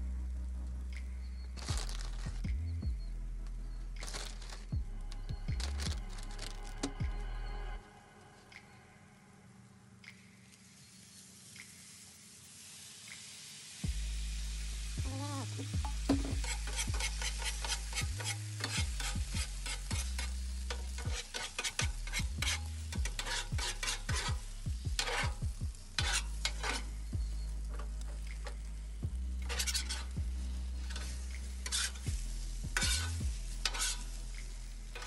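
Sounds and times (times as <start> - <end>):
eggs sizzling on a griddle: 1.3 - 2.4, 4.0 - 4.7, 9.5 - 35.0
metal spatula scraping griddle: 14.8 - 28.7, 29.4 - 35.0.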